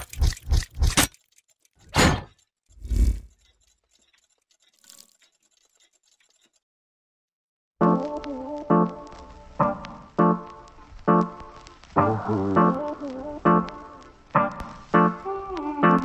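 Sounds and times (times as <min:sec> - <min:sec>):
metallic clanking hits: 0:01.8 - 0:05.1.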